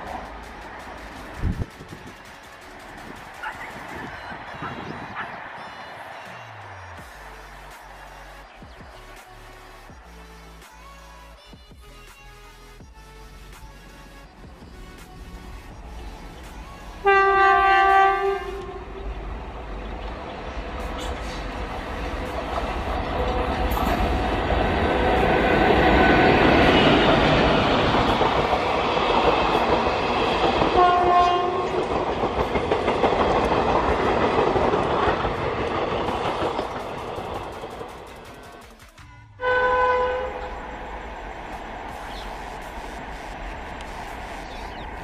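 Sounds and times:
train passing at speed: 0.0 - 10.6, 14.3 - 45.0
train horn blasting: 17.0 - 19.2, 30.7 - 31.9, 39.2 - 40.8.

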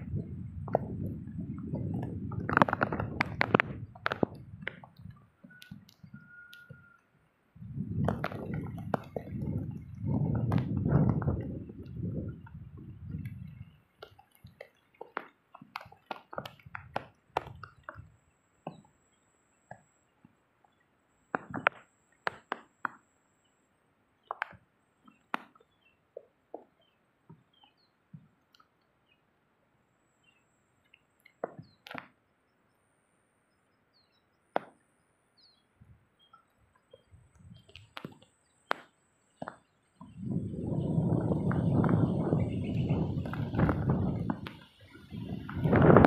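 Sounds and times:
faint high chirps: 5.4 - 7.2.

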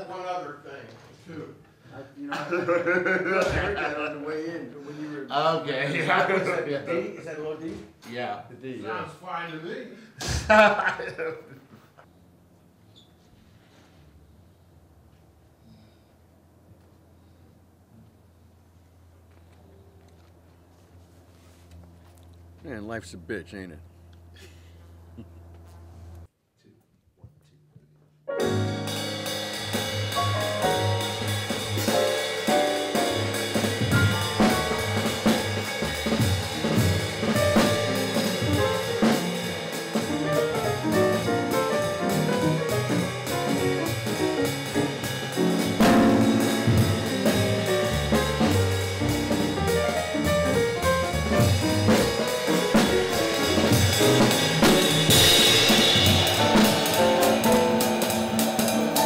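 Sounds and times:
acoustic piano: 28.3 - 59.0
drum kit with cymbals: 28.3 - 59.0
upright bass: 28.4 - 57.8.

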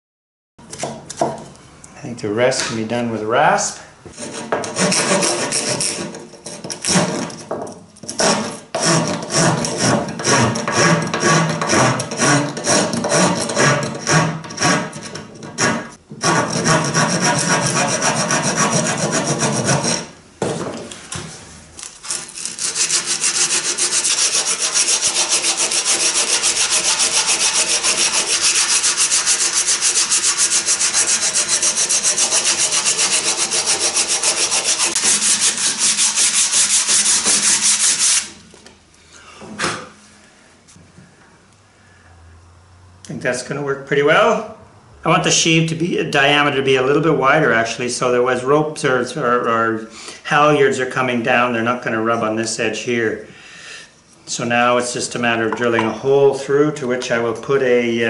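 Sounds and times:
hand sanding wood: 4.1 - 7.3, 8.1 - 20.1, 22.0 - 38.4
rasp scraping wood: 4.1 - 20.1, 21.9 - 38.4.

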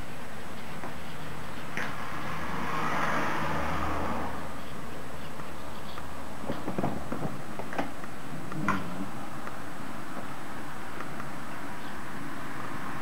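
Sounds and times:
road vehicle passing: 0.3 - 13.0.

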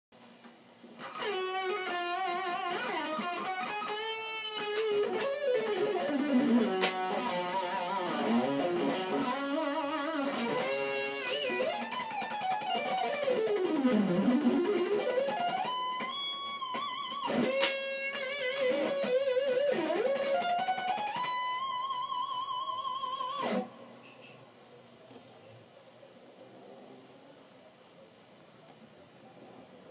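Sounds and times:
electric guitar lead solo: 1.0 - 23.9.

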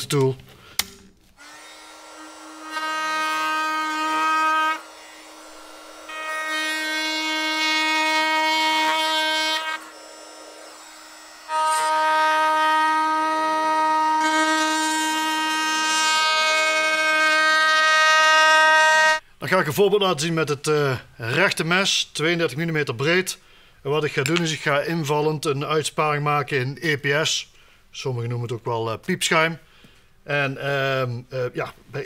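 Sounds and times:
oscillating multitool cutting carpet: 1.4 - 19.2.

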